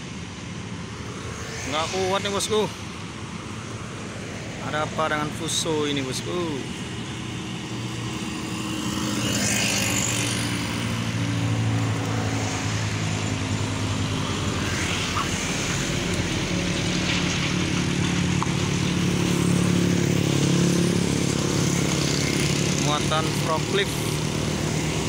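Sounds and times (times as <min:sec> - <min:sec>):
passing motorcycles and cars: 0:00.0 - 0:25.0
vehicle whoosh: 0:01.0 - 0:23.2
diesel truck engine labouring: 0:01.7 - 0:25.0.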